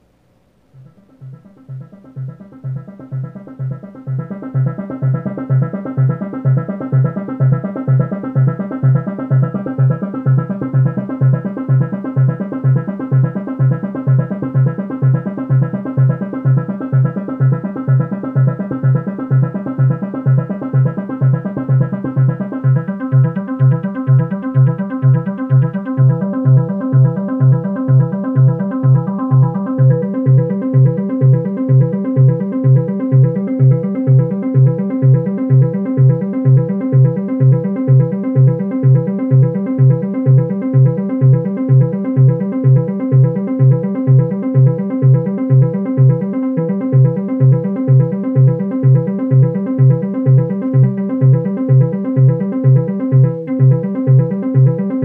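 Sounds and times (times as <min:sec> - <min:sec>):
looping synth arpeggio: 0:00.8 - 0:55.0.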